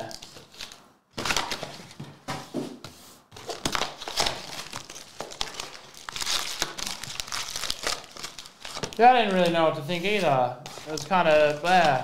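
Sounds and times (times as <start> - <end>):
foil wrappers crinkling and tearing: 3.4 - 12.0.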